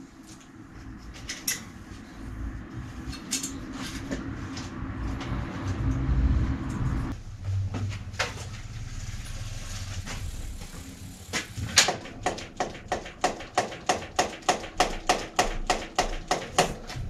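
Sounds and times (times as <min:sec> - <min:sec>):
low hum: 0:00.0 - 0:13.6.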